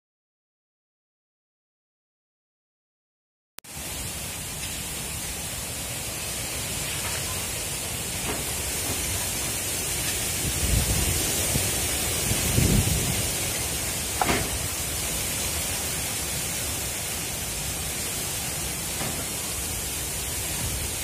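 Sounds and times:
low microphone buffeting: 8.2 - 15.2
wind noise on microphone: 10.0 - 15.1, 20.4 - 21.0.

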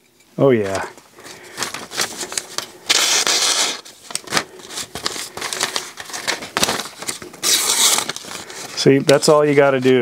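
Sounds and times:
paper rustling: 0.6 - 10.0
knife slicing paper: 2.9 - 4.4, 7.4 - 8.3.

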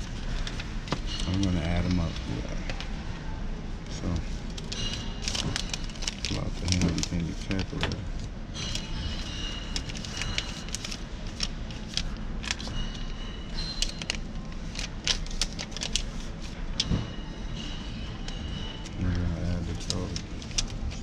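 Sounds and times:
paper slips crinkling: 4.0 - 16.9, 17.6 - 21.0.

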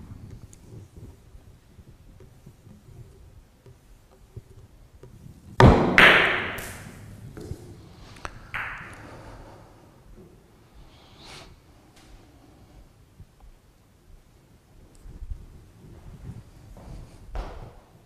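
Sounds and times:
billiard balls clicking: 2.0 - 9.1
cue striking ball: 5.6 - 7.5, 8.5 - 9.0.

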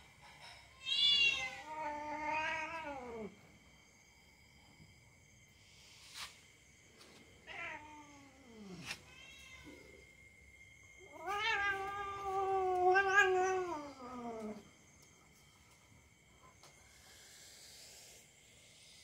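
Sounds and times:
cat yowling: 0.8 - 3.3, 7.5 - 9.8, 11.1 - 14.6.

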